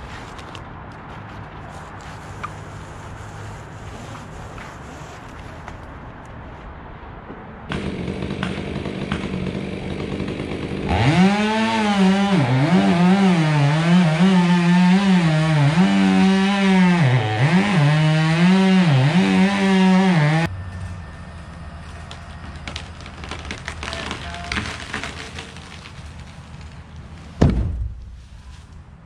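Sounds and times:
chainsaw cutting wood: 0:07.7 - 0:20.5, 0:22.6 - 0:26.4.

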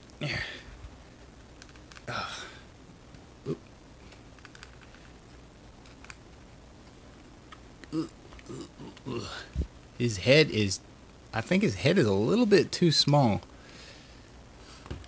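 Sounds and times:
short vocal grunts: 0:07.9 - 0:09.6
breath: 0:13.6 - 0:14.9.

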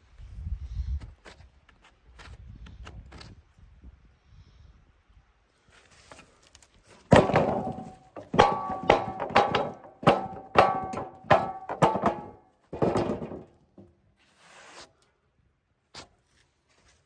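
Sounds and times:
wood slab thunking on metal rails: 0:07.0 - 0:14.0.

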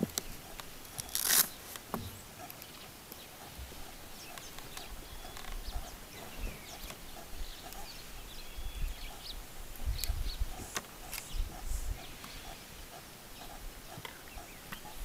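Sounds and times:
faint bird chirps: 0:00.2 - 0:15.0
branches snapping: 0:01.0 - 0:02.0.

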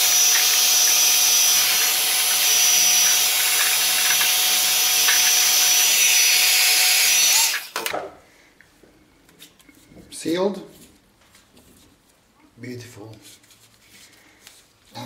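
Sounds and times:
heat gun fan whine: 0:00.0 - 0:08.1.

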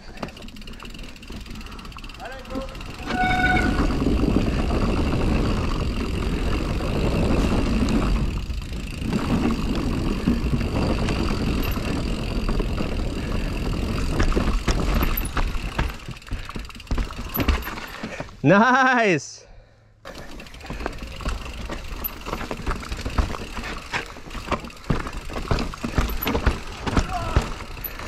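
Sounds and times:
bike tyres rumbling on trail: 0:00.0 - 0:18.4, 0:20.0 - 0:28.0
wind noise: 0:02.8 - 0:15.8.

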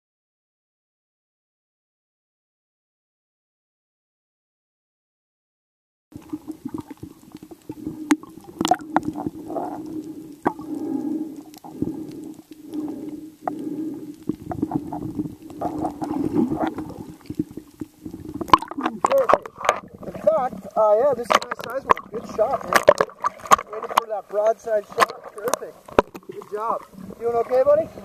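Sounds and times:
underwater gurgling and sloshing: 0:06.1 - 0:28.0
steady low hum: 0:06.2 - 0:27.2.

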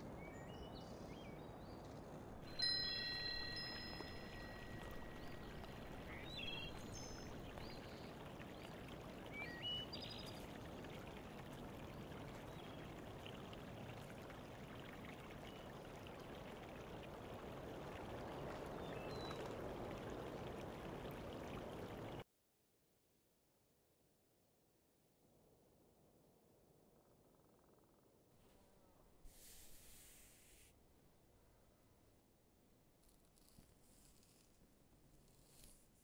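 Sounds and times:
water rushing into pond: 0:02.4 - 0:22.2.

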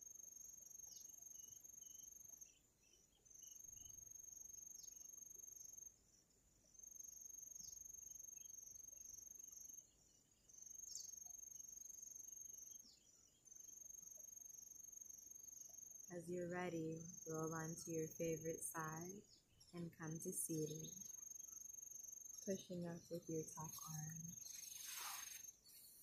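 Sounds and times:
high-pitched insect trill: 0:00.0 - 0:05.9, 0:20.6 - 0:26.0.

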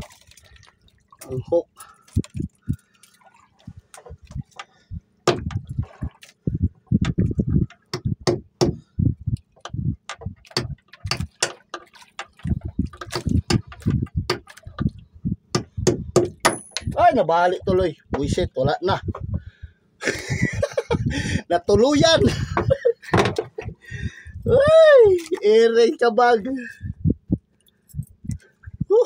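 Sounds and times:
water splashing and sloshing: 0:00.0 - 0:29.0
clicks and knocks: 0:03.9 - 0:06.4, 0:09.6 - 0:15.0, 0:15.6 - 0:17.0, 0:22.6 - 0:23.8.

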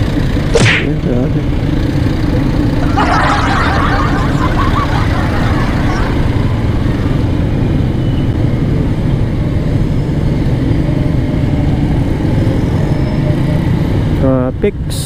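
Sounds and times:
motorcycle engine running: 0:00.0 - 0:03.0
surrounding traffic noise: 0:00.0 - 0:15.0.

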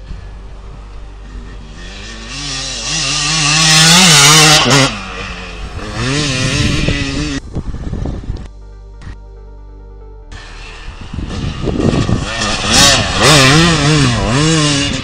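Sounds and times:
motocross bike engine revving: 0:00.2 - 0:07.4, 0:10.3 - 0:15.0.

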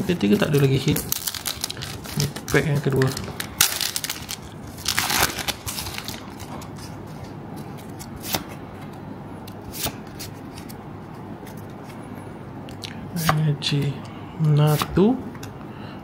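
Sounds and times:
foil wrapper crinkling: 0:00.5 - 0:06.6.

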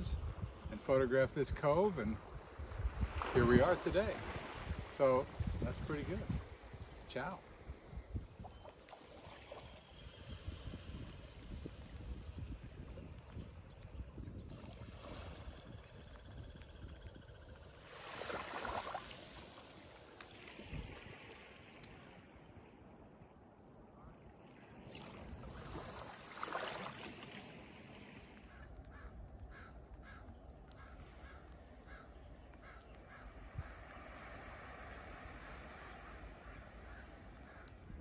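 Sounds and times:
surf washing over sand: 0:02.8 - 0:06.5, 0:17.8 - 0:22.6, 0:33.2 - 0:37.0
crow cawing: 0:28.5 - 0:33.8.

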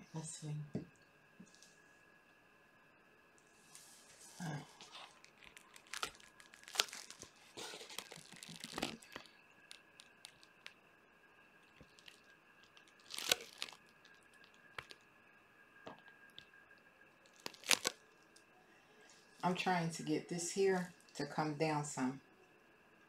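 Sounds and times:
gloved hands rustling: 0:03.8 - 0:10.7, 0:11.8 - 0:15.0, 0:17.3 - 0:18.0
plastic sheeting crinkling: 0:03.8 - 0:10.8, 0:11.7 - 0:15.0, 0:17.2 - 0:18.0.

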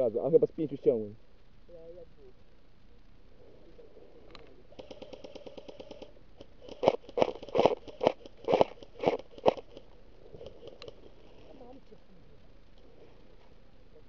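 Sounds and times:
airsoft gun full-auto burst: 0:04.7 - 0:11.1.

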